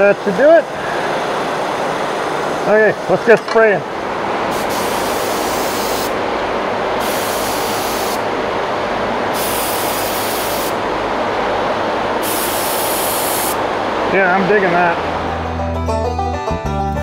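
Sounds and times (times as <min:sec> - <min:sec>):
exhaust fan noise: 0:00.0 - 0:15.9
paint spray gun hissing: 0:04.5 - 0:06.2, 0:07.0 - 0:08.3, 0:09.3 - 0:10.8, 0:12.2 - 0:13.6.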